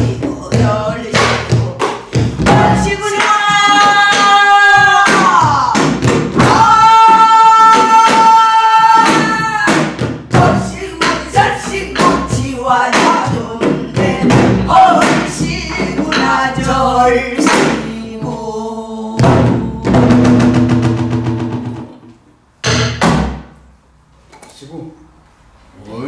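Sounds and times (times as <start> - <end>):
women singing folk song: 0.0 - 20.3.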